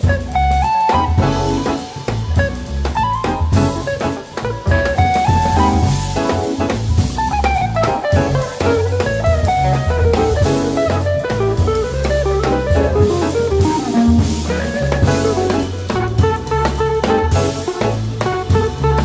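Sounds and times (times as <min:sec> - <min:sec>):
bass line: 0:00.0 - 0:19.0
drum kit and cymbals: 0:00.0 - 0:19.0.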